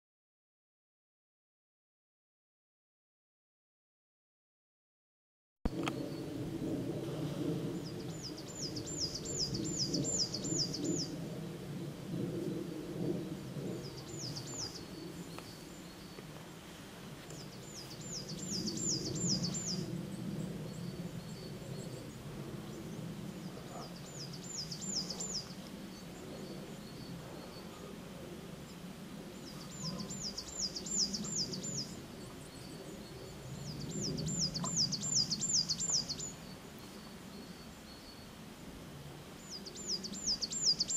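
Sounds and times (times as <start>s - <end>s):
low outdoor rumble: 5.7s - 37.4s.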